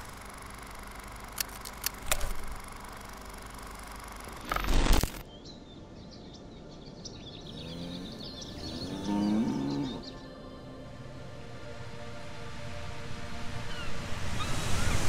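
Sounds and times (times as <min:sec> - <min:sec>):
sharp clicks: 0:00.0 - 0:05.2
birds chirping: 0:05.2 - 0:10.3
cow mooing: 0:07.5 - 0:10.1.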